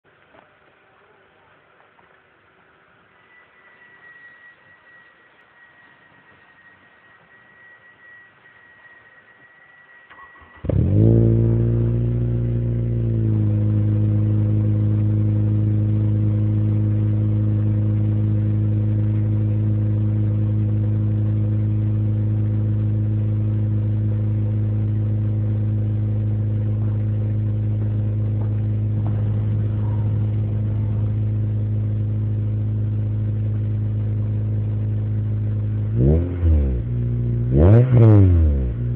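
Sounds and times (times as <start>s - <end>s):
faint steady high tone: 2.9s - 10.7s
car engine starting and idling: 9.8s - 38.9s.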